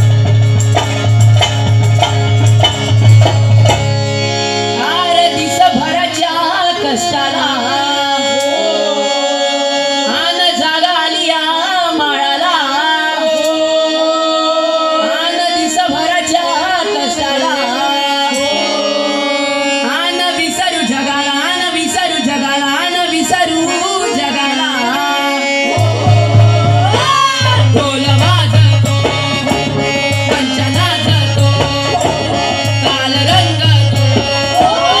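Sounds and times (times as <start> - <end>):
hand-beaten drum: 0.0 - 4.1, 25.6 - 35.0
voices singing: 4.8 - 35.0.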